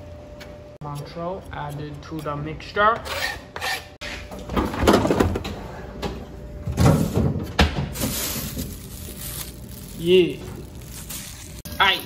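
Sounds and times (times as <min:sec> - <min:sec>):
refrigerator opening: 0:04.0 - 0:08.8.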